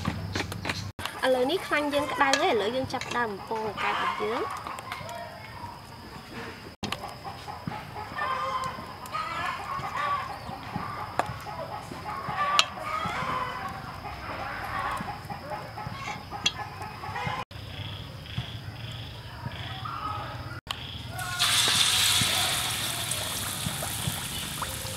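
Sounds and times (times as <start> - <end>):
chickens clucking: 0.0 - 17.5.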